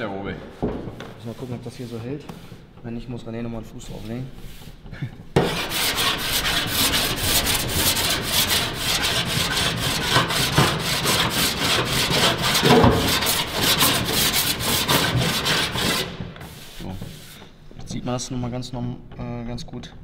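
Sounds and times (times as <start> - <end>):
file rasping over metal: 5.4 - 16.8.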